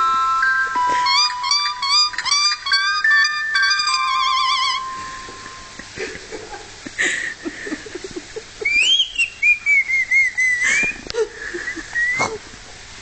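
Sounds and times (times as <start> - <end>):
parrot whistling a warbling tune: 0.0 - 5.8, 8.6 - 11.0.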